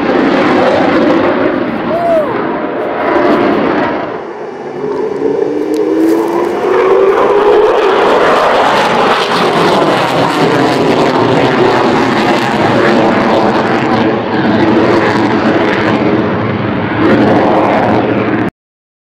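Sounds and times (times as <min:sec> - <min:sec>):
fighter jet roar: 0:00.0 - 0:18.5.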